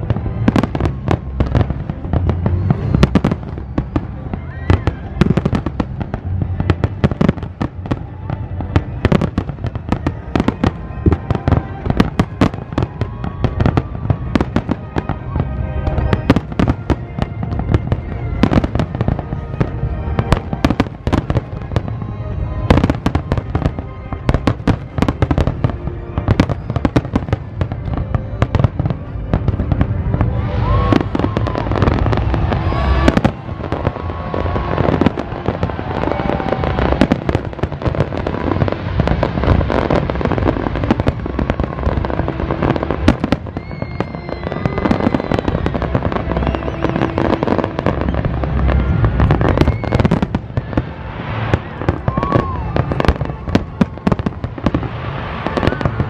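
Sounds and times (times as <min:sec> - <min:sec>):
fireworks crackling: 0:00.0 - 0:56.0.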